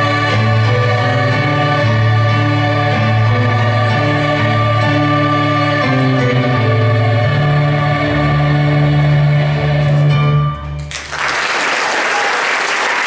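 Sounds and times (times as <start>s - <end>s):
choir with instruments: 0.0s - 10.8s
audience applause: 10.9s - 13.0s.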